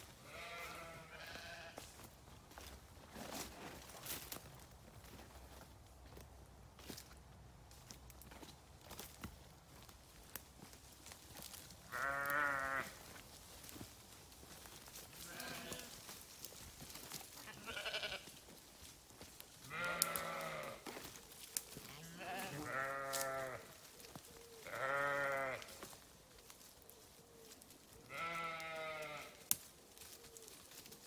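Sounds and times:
sheep bleating: 0:00.2 - 0:01.9, 0:11.9 - 0:13.0, 0:15.2 - 0:16.0, 0:17.4 - 0:18.3, 0:19.6 - 0:21.0, 0:21.9 - 0:23.7, 0:24.6 - 0:25.9, 0:28.1 - 0:29.4.

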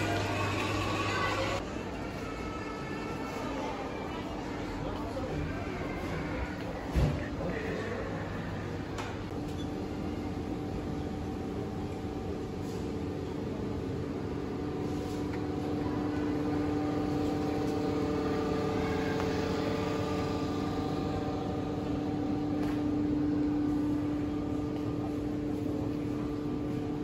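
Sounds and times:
mechanical hum with steady tones: 0:00.0 - 0:27.0.

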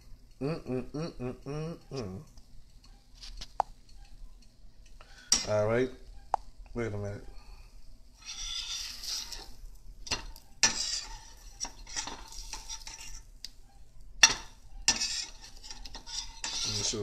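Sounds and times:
metal spatula scraping frying pan: 0:05.1 - 0:05.6, 0:08.2 - 0:13.3, 0:14.2 - 0:17.0
oil sizzling: 0:08.0 - 0:13.6, 0:14.2 - 0:17.0.

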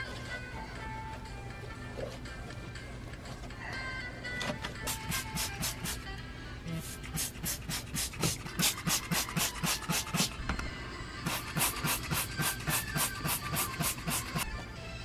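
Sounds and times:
spray bottle hissing: 0:04.9 - 0:06.1, 0:06.7 - 0:10.4, 0:11.2 - 0:14.4.

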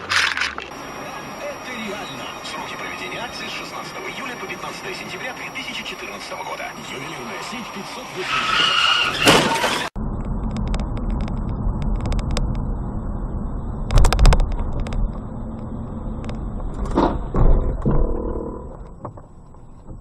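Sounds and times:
car cabin rumble: 0:10.0 - 0:20.0.

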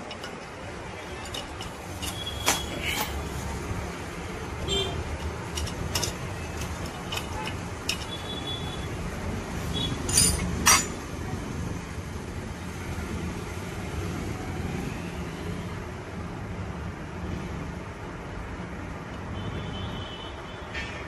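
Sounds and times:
light metallic clicks and clinks: 0:00.0 - 0:03.4, 0:05.0 - 0:08.7, 0:09.8 - 0:11.0.

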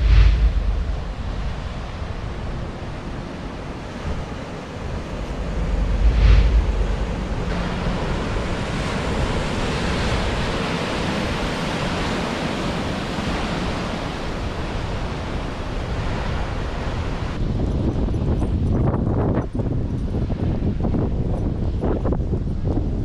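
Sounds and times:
ocean surf breaking: 0:00.0 - 0:17.4
wind buffeting microphone: 0:00.0 - 0:23.0.

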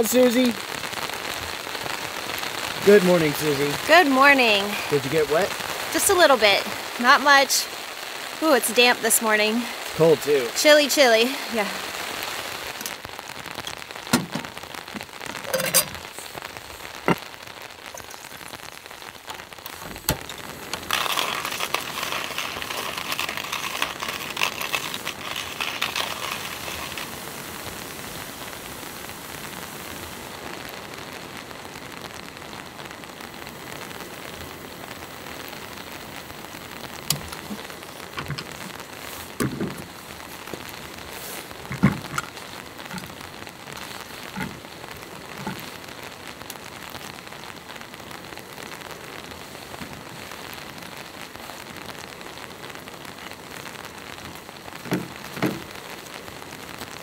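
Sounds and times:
loud hiss: 0:00.0 - 0:31.4, 0:33.3 - 0:47.0
rain pattering on a tarp: 0:00.0 - 0:57.0
cooking gear knocks and clicks: 0:41.7 - 0:42.3.

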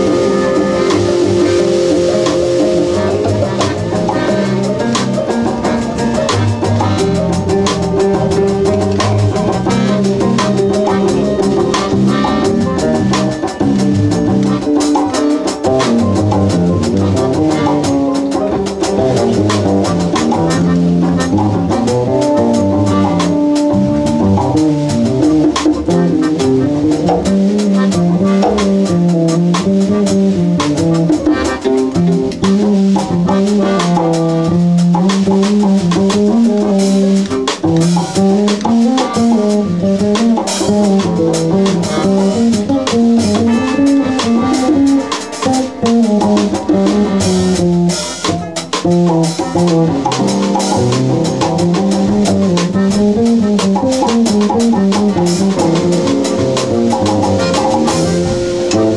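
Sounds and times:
drum kit steady beat: 0:00.0 - 0:58.9
saxophone: 0:00.0 - 0:58.9
strummed ukulele: 0:40.0 - 0:47.0.

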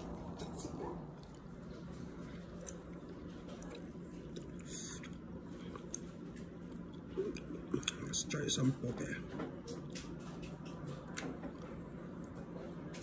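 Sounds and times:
person chewing food: 0:00.0 - 0:08.1.

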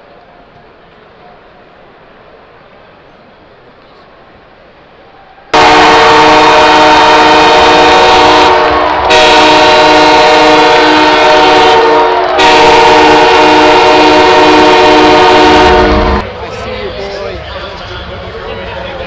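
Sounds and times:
arena goal horn blasts: 0:05.6 - 0:16.2.

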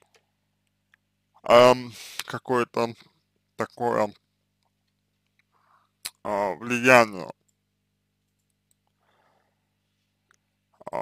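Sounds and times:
faint low hum: 0:00.0 - 0:11.0
person speaking: 0:01.4 - 0:03.0, 0:03.6 - 0:04.2, 0:06.0 - 0:07.4
noisy breath intake: 0:01.9 - 0:02.4, 0:05.5 - 0:06.0, 0:08.9 - 0:09.9.

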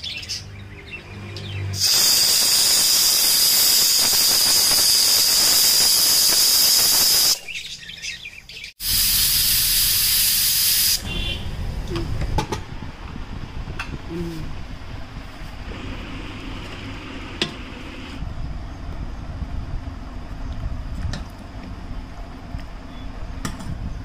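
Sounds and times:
pressure cooker whistling: 0:01.8 - 0:07.5, 0:08.8 - 0:11.4.

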